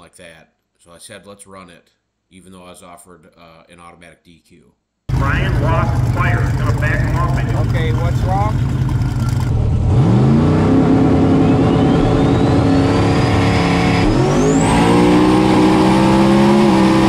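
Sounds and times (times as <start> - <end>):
car engine at full throttle: 5.1 - 17.0
high whine: 5.1 - 17.0.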